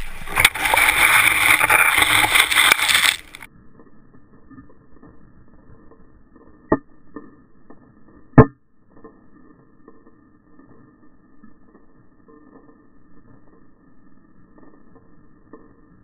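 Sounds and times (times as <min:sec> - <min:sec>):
sharp knocks underwater: 0:06.7 - 0:09.2.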